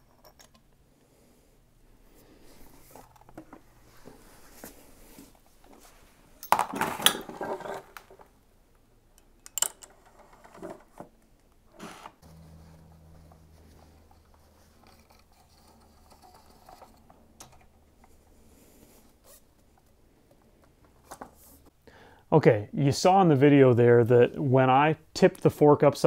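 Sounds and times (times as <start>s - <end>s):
faint low hum: 12.2s - 21.3s.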